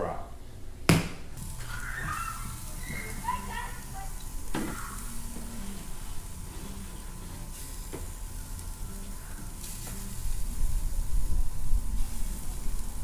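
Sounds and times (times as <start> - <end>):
food sizzling on a grill: 1.3 - 13.0
light knocks on grill grate: 4.5 - 4.9, 7.8 - 8.1.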